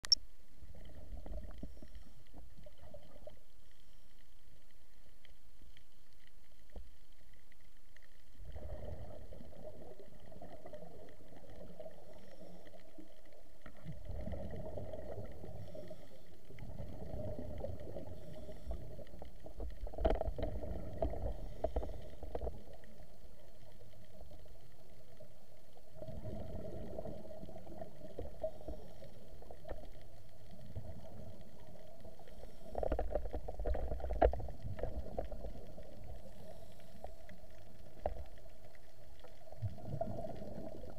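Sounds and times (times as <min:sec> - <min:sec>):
underwater regulator bubbles gurgling: 0:08.3 - 0:40.9.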